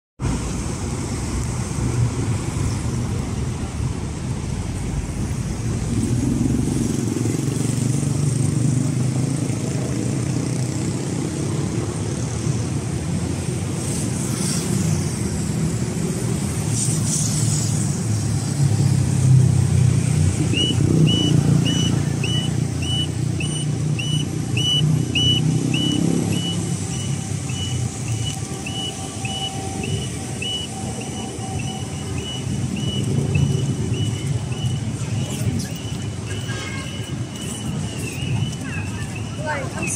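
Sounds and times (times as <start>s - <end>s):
road traffic passing: 0.2s - 39.9s
crossing signal beeping: 20.4s - 39.9s.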